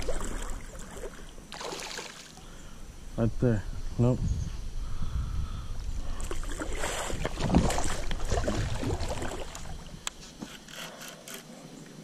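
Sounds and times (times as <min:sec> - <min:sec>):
fish splashing in water: 0:00.0 - 0:02.4, 0:06.3 - 0:09.9.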